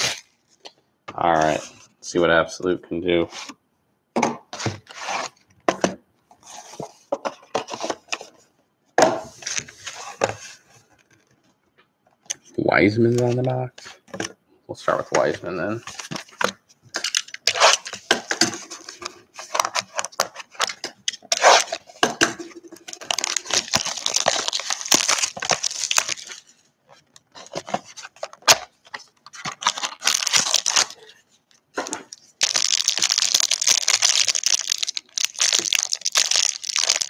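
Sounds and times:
plastic wrapping crinkling: 22.9s - 26.6s, 29.3s - 31.2s, 31.8s - 37.0s.

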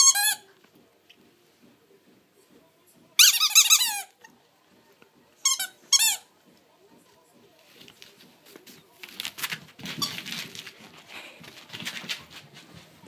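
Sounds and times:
squeaky dog toy squeaking: 0.0s - 0.4s, 3.2s - 4.2s, 5.4s - 6.3s.

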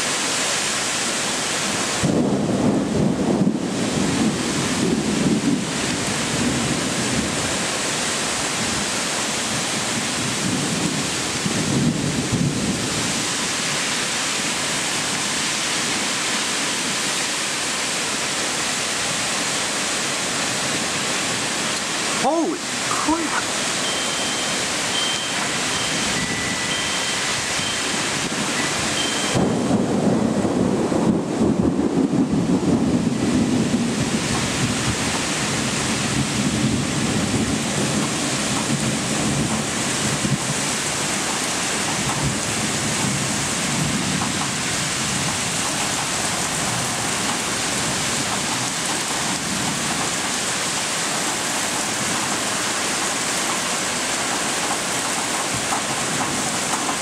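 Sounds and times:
heavy rain pouring: 0.0s - 57.0s
thunder rumbling: 2.0s - 7.8s, 9.5s - 13.3s, 25.3s - 50.2s.

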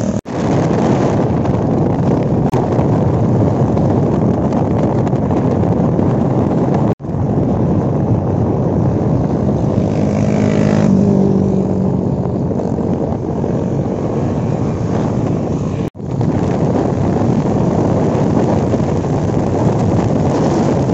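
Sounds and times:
motorcycle engines: 0.0s - 20.9s
wind rush on microphone: 0.0s - 20.9s.

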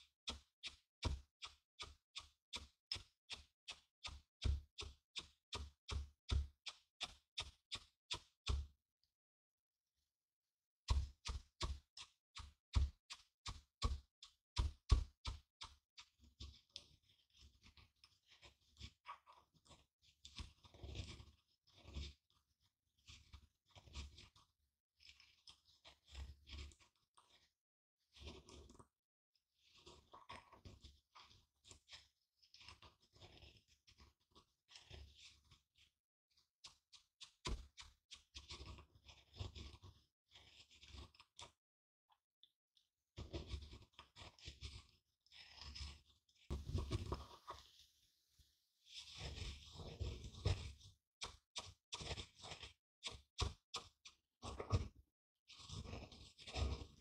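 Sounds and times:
pestle pounding seeds in mortar: 10.9s - 15.5s
grinding and crunching in mortar: 16.2s - 22.4s, 23.0s - 24.4s, 25.0s - 27.5s, 28.1s - 28.9s, 29.6s - 35.9s, 37.0s - 41.6s, 43.2s - 47.8s, 49.0s - 55.0s, 55.6s - 57.0s.

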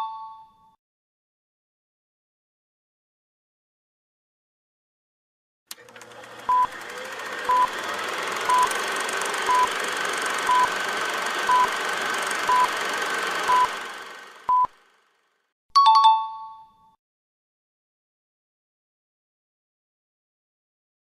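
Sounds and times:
short electronic beeps: 11.5s - 11.7s, 12.5s - 12.7s, 14.5s - 14.7s.

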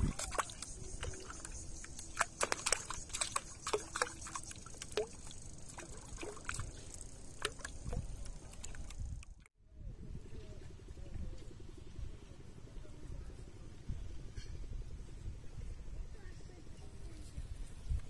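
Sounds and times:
water sloshing and splashing: 0.0s - 9.5s.

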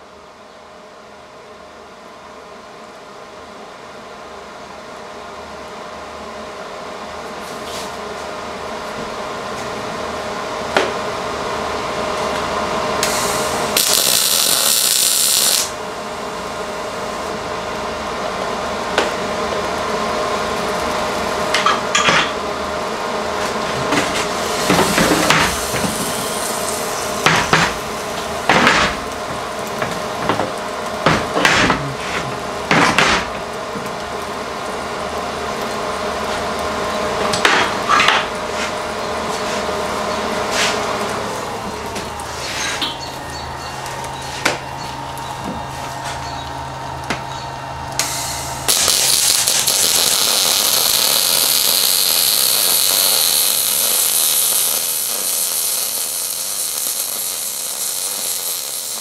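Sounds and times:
steady shop hum: 0.0s - 59.0s
welding arc crackle: 11.7s - 38.9s, 47.8s - 59.0s.

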